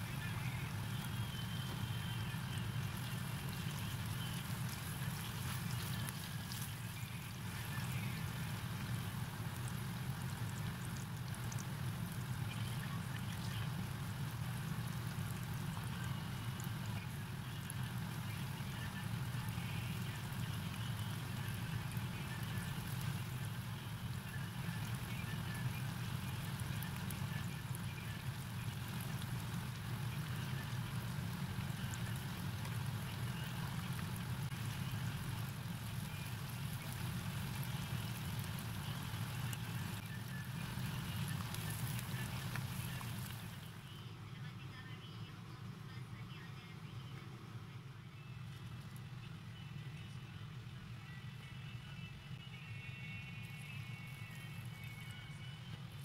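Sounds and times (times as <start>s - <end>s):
tofu deep-frying in oil: 0.0s - 43.9s
low steady hum: 0.0s - 56.0s.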